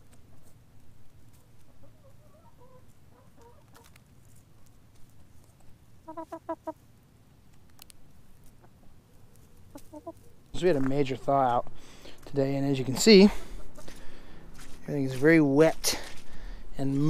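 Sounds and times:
hens clucking: 0.0s - 4.3s, 5.6s - 6.9s, 8.0s - 10.5s, 12.8s - 14.1s
beaks pecking the ground: 0.0s - 11.0s.

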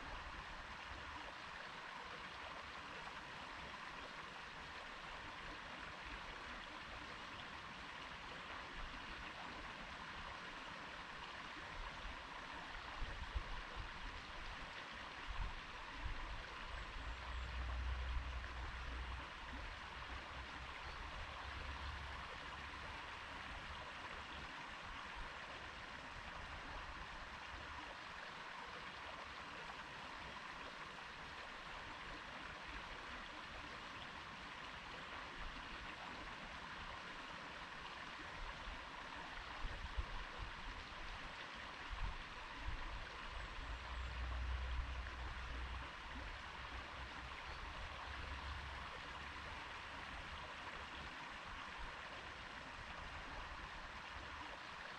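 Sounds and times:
stream flowing over stones: 0.0s - 54.9s.

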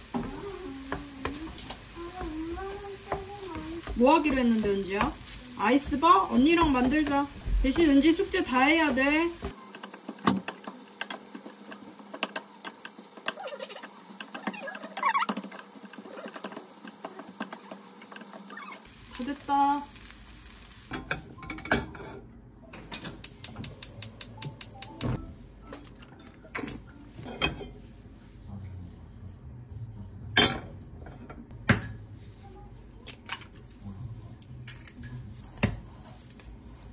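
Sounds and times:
utensils tapping cookware: 0.1s - 18.6s, 20.9s - 25.1s.

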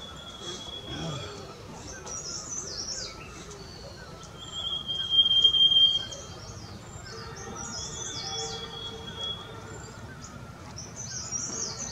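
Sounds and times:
small birds chirping: 0.0s - 11.9s.

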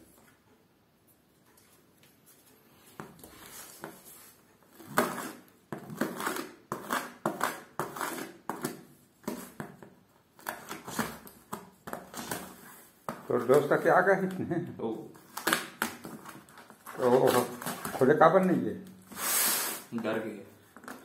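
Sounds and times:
tape ripping: 15.2s - 18.2s.

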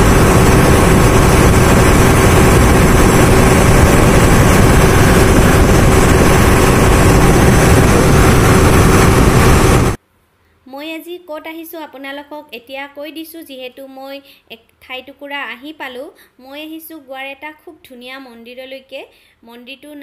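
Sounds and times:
ferry engine humming: 0.0s - 10.0s
water rushing along hull: 0.0s - 10.0s.

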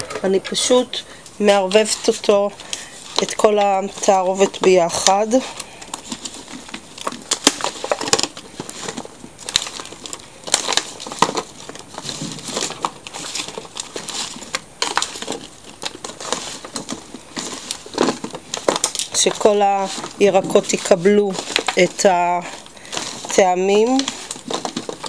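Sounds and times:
aluminium foil crinkling: 0.0s - 25.0s
vegetable pieces knocking and squelching: 1.6s - 25.0s.

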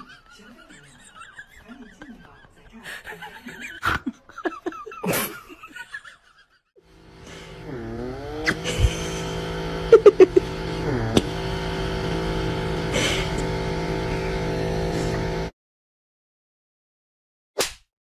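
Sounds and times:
small electric motor whine: 6.8s - 15.5s.

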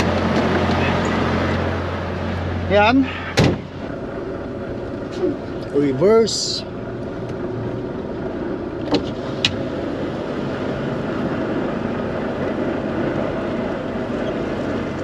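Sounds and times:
diesel truck engine running: 0.0s - 15.0s.

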